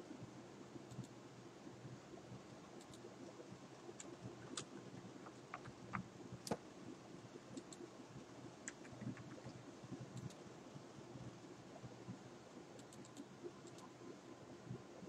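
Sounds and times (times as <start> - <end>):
faint hum: 0.0 - 15.0
keyboard keystrokes: 4.0 - 6.6.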